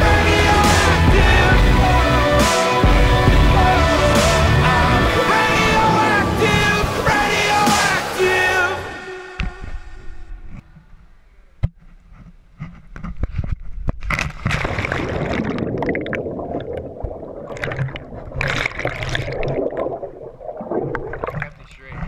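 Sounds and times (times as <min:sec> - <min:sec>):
muffled underwater rush: 0:00.0 - 0:09.0, 0:14.4 - 0:22.0.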